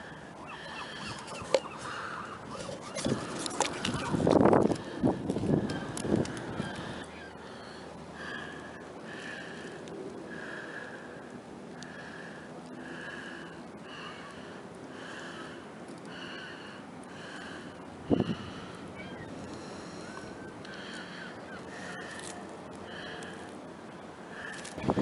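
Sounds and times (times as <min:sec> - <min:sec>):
bird calling: 0:00.0 - 0:04.9, 0:05.6 - 0:08.4, 0:16.2 - 0:23.4.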